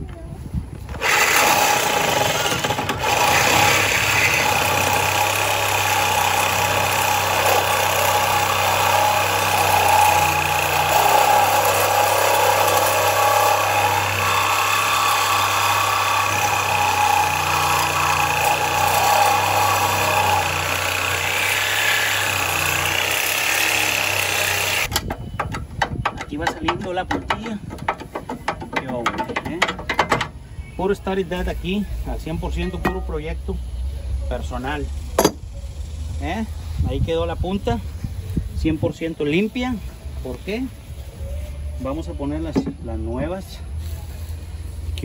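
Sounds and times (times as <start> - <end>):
power tool cutting steel: 1.0 - 25.6.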